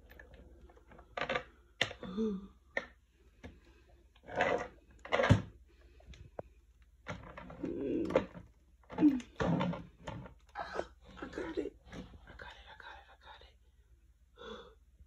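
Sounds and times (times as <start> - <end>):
plastic scooter clacking and rattling: 1.0 - 2.0.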